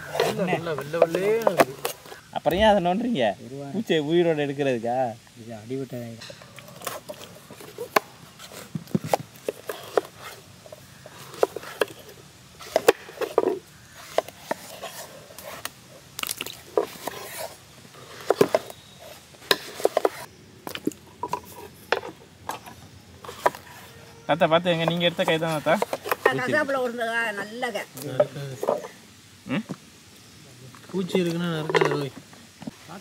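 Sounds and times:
soft squishing: 6.4s - 26.3s.

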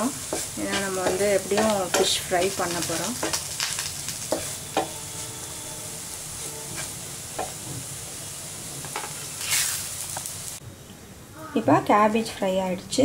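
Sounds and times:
vegetables sizzling in oil: 0.0s - 10.6s
wooden spatula scraping pan: 0.2s - 3.4s, 4.3s - 7.9s.

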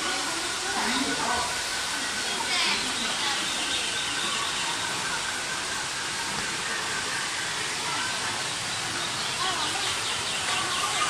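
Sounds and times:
crowd chatter: 0.0s - 11.0s
steady hiss: 0.0s - 11.0s.

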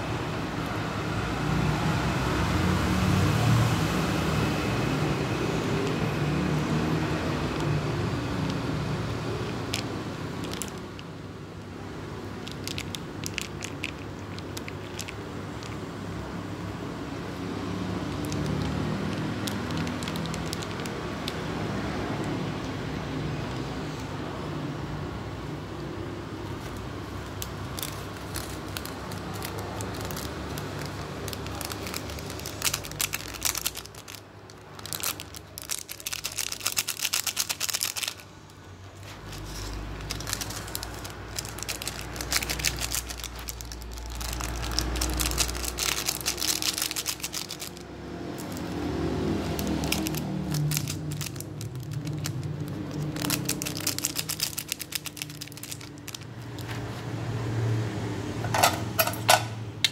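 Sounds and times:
plastic sachets crinkling: 6.8s - 11.1s, 12.2s - 15.9s, 17.9s - 22.4s, 26.6s - 57.0s.

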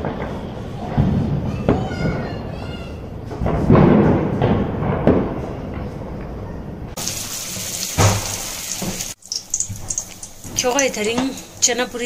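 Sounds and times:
thuds: 3.3s - 6.2s
hot oil sizzling: 7.0s - 12.0s.

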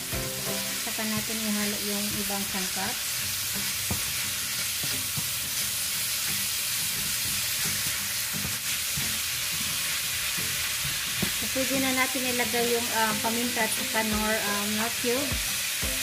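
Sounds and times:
meat and onion sizzling in oil: 0.0s - 16.0s
spatula scraping and tapping pan: 3.8s - 5.7s, 7.0s - 9.8s.

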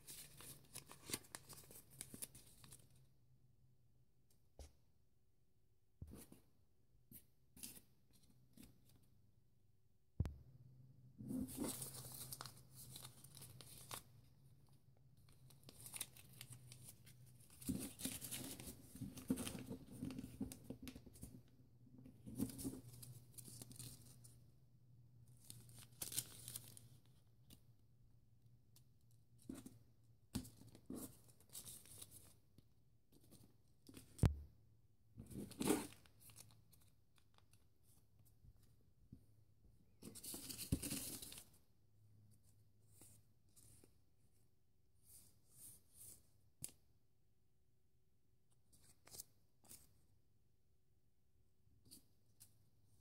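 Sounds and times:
paper rustling and crinkling: 0.0s - 2.9s, 11.3s - 14.1s, 15.4s - 21.4s, 25.4s - 26.9s, 40.0s - 41.6s.

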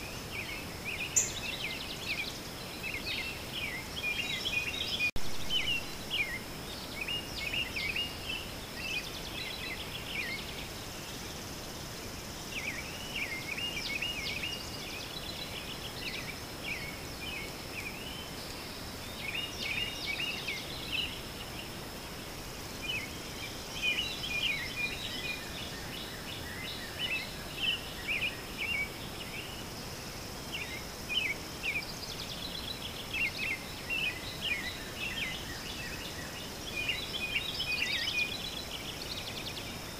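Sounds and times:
birds chirping: 0.0s - 11.3s.

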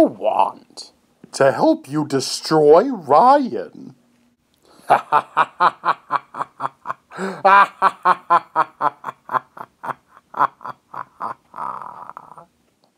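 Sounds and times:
man giving evil laugh: 4.8s - 12.5s.

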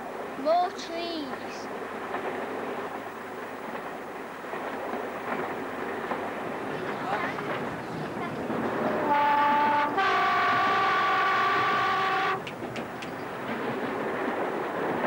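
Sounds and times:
train running noise: 0.0s - 15.0s
two-note train horn: 8.9s - 12.5s.

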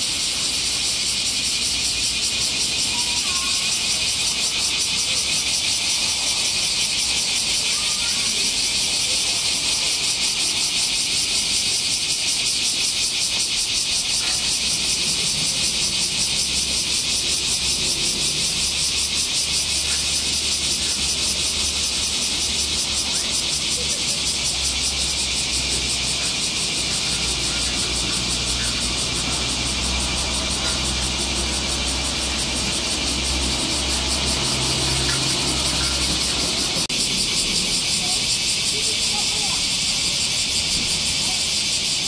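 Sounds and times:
cicadas buzzing: 0.0s - 42.0s.

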